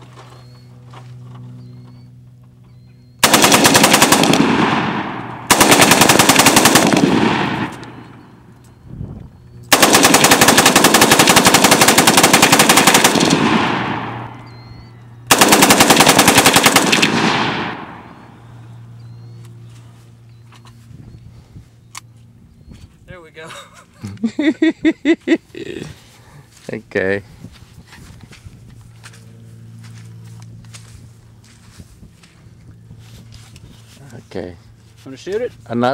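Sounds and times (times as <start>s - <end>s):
machine gun bursts: 3.2s - 8.1s, 9.7s - 14.3s, 15.3s - 18.0s
rolling gunfire echo: 3.2s - 8.3s, 9.7s - 14.5s, 15.3s - 18.4s.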